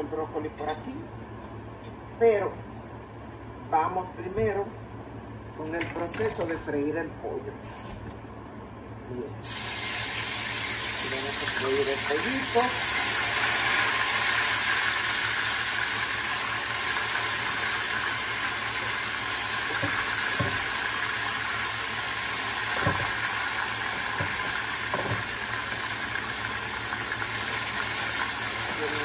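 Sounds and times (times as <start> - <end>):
chicken sizzling in hot oil: 9.4 - 29.0.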